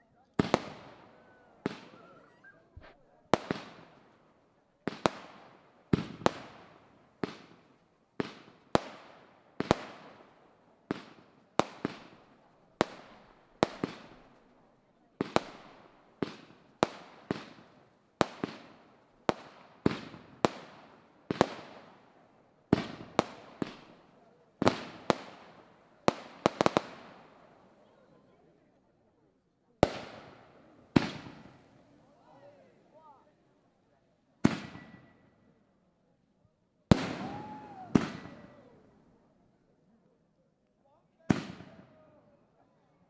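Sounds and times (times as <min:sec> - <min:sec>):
fireworks bangs echoing: 0:00.4 - 0:04.2, 0:04.9 - 0:10.3, 0:10.9 - 0:14.4, 0:15.2 - 0:22.0, 0:22.7 - 0:27.5, 0:29.8 - 0:31.8, 0:34.4 - 0:35.2, 0:36.9 - 0:38.7, 0:41.3 - 0:41.9.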